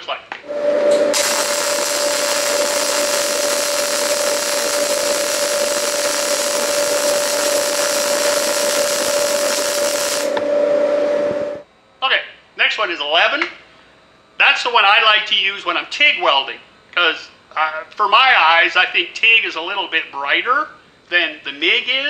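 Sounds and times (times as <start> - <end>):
steady hum: 0.4 - 14.8
welding arc crackling hiss: 1.1 - 10.4.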